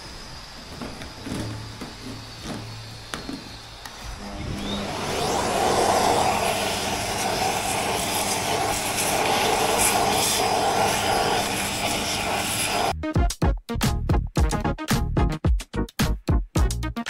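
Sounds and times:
vacuum cleaner running: 0.0s - 13.0s.

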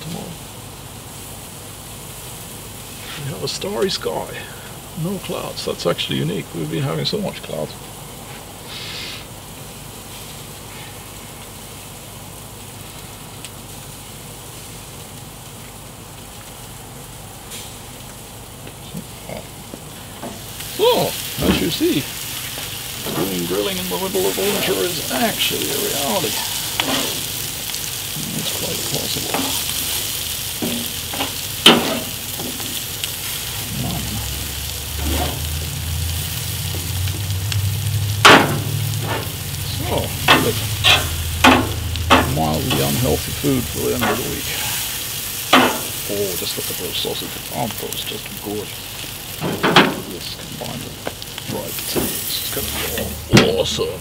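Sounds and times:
food sizzling: 0.0s - 54.0s
gas grill burners hissing: 0.0s - 54.0s
metal spatula scraping: 26.2s - 27.4s, 35.0s - 35.5s, 38.6s - 43.0s
sharp metal clack: 30.6s - 32.7s, 38.2s - 39.3s, 40.3s - 42.4s.

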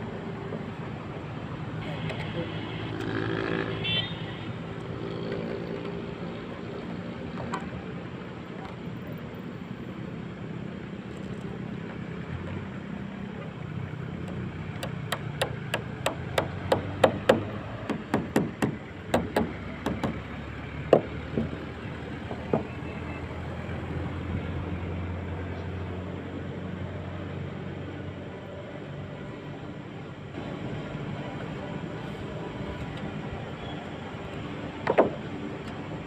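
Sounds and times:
sharp taps and knocks: 14.2s - 21.6s.

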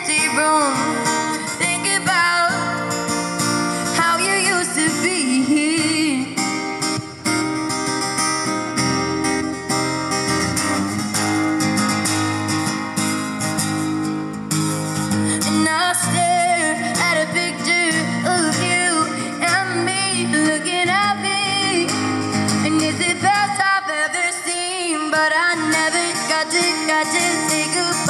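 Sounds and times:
woman singing with vibrato: 0.0s - 7.0s, 15.3s - 28.0s
strummed acoustic guitar: 0.0s - 28.0s.

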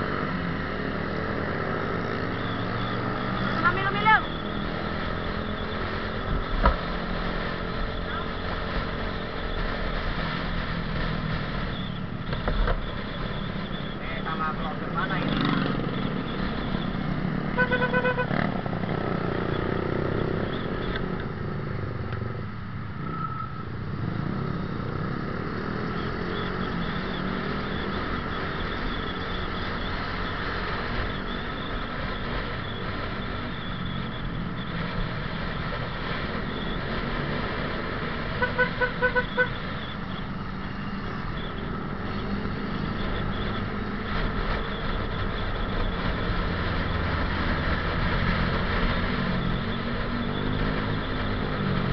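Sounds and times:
other motorcycles in traffic: 0.0s - 51.9s
road and wind noise: 0.0s - 51.9s
horn short toots: 17.6s - 18.4s.

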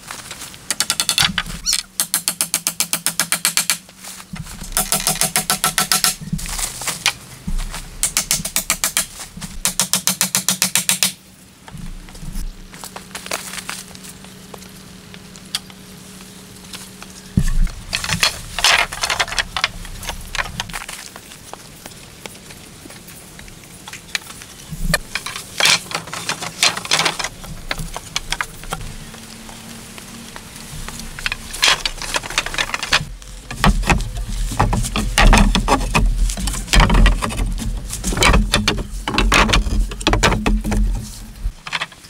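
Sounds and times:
wooden poles clacking: 0.0s - 14.0s, 16.7s - 21.6s, 23.8s - 29.6s, 30.6s - 42.0s
rustling and scuffs: 6.2s - 8.0s
heavy wooden knocks: 31.2s - 41.5s.

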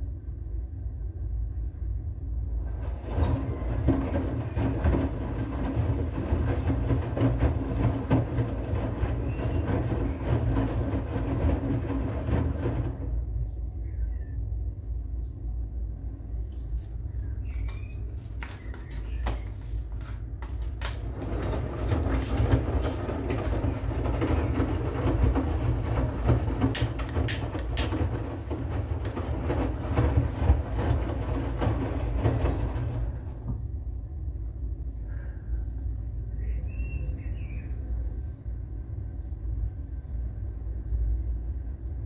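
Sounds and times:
washing machine humming: 0.0s - 42.0s
wet laundry sloshing in drum: 2.6s - 13.4s, 17.2s - 33.6s.

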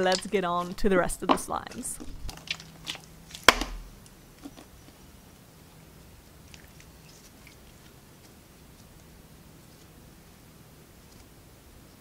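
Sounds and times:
faint steady hum: 0.0s - 12.0s
slime popping: 2.0s - 4.0s.

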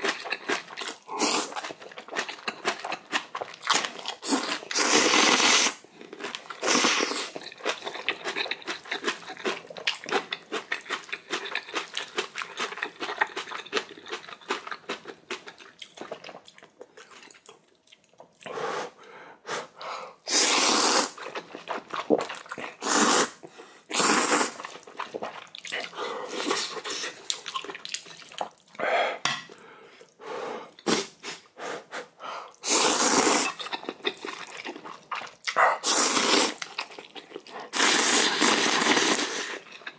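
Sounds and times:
chewing and mouth smacking: 0.0s - 4.8s, 6.0s - 18.5s, 21.2s - 22.8s, 24.6s - 28.8s, 33.4s - 35.6s, 36.5s - 39.9s
noodles being slurped: 3.8s - 9.6s, 20.3s - 28.6s, 32.6s - 39.9s.

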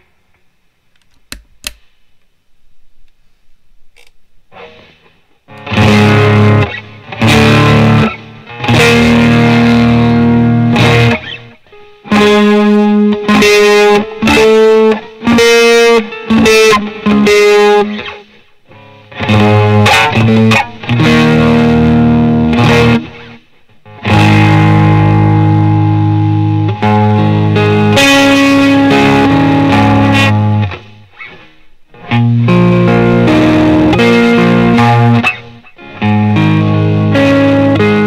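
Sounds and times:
electric guitar chords: 4.5s - 38.0s.

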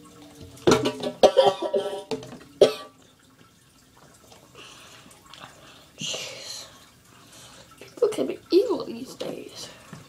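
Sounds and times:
boy coughing and gagging: 1.2s - 3.0s.

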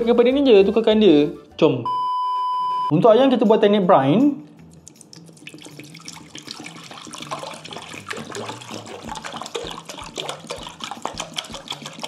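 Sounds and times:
water pouring into a bowl: 4.6s - 12.0s.

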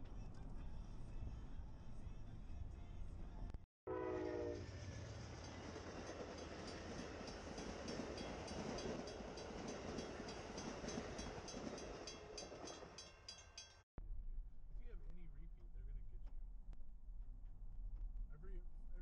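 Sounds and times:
horn blast: 3.9s - 4.8s.

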